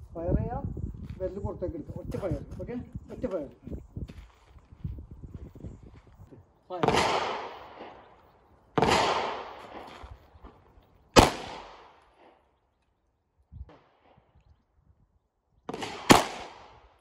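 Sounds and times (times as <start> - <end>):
pistol shots with echo: 6.7 - 8.2, 8.8 - 10.0, 11.2 - 12.4, 15.7 - 16.9.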